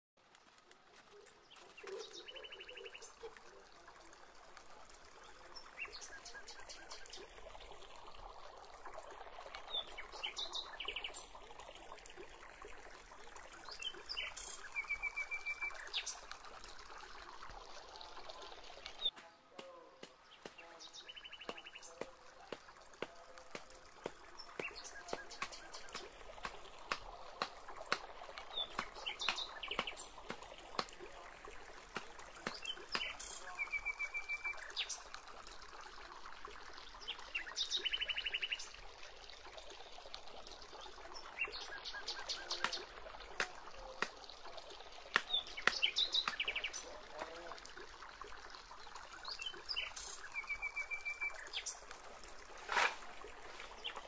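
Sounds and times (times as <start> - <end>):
bamboo stakes clicking and knocking: 0.2 - 2.0, 18.8 - 31.1, 31.8 - 33.3, 42.2 - 44.4, 45.0 - 47.3, 52.6 - 53.9.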